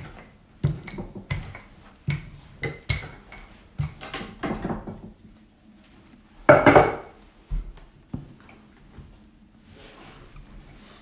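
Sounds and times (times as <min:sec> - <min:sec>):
rolling pin knocking on pastry board: 0:06.5 - 0:07.1.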